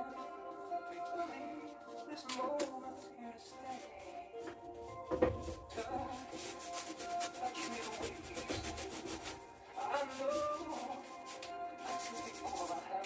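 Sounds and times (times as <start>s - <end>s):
paint scrubbed onto canvas: 4.9s - 13.0s.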